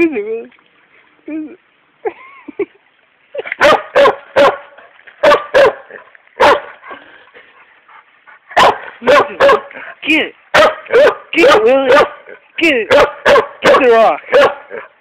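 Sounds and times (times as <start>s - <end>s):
dog barking sharply: 3.6s - 5.8s, 6.4s - 6.7s, 8.6s - 9.7s, 10.6s - 12.2s, 12.9s - 14.8s.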